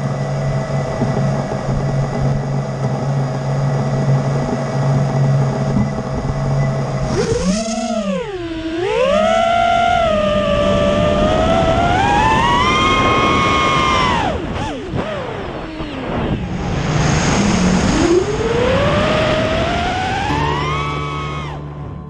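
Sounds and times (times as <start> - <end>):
quadcopter motors humming and whining: 0.0 - 21.9.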